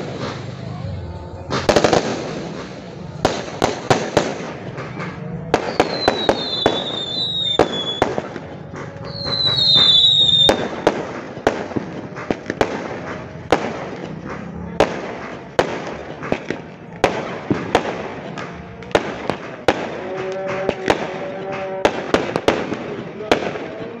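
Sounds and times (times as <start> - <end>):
fireworks bangs: 0.0 - 24.0
falling firework whistles: 4.5 - 13.8.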